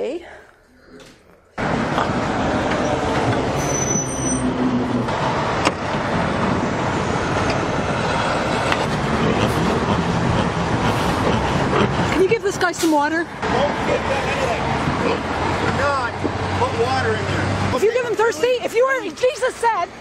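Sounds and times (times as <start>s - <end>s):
road traffic noise: 0.0s - 20.0s
heavy vehicle engine running: 1.6s - 18.6s.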